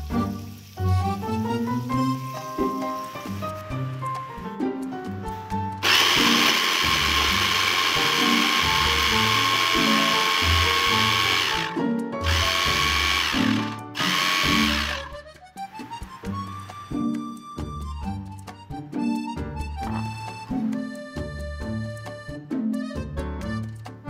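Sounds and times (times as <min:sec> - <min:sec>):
background music: 0:00.0 - 0:24.0
food chopper motor running: 0:05.8 - 0:16.1.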